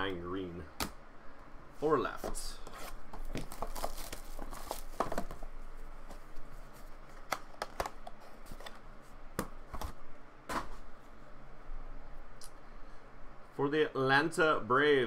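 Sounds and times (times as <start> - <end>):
plastic crinkle: 3.1 - 5.5.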